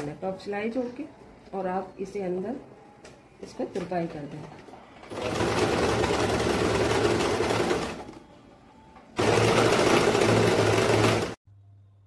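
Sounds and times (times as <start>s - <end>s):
sewing machine stitching: 5.0s - 8.2s, 9.2s - 11.4s.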